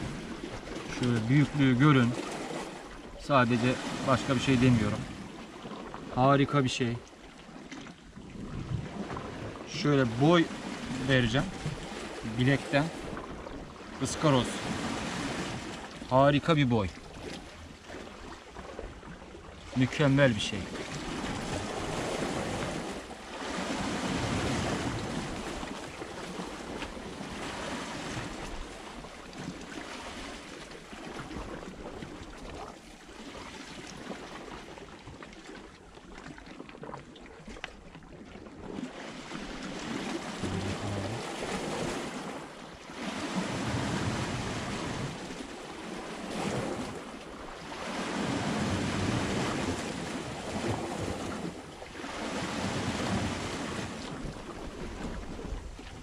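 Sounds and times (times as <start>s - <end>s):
waves washing against rocks: 0.0s - 5.2s, 8.9s - 16.9s, 19.8s - 30.6s, 38.8s - 56.0s
wind on microphone: 8.3s - 9.7s.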